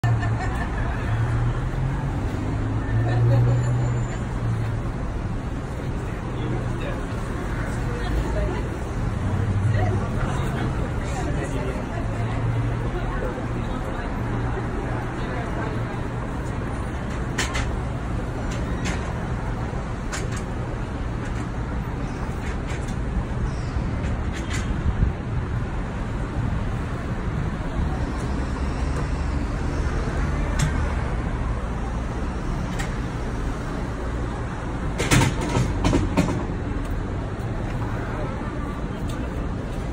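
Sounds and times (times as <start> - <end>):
street traffic rumble: 0.0 - 39.9.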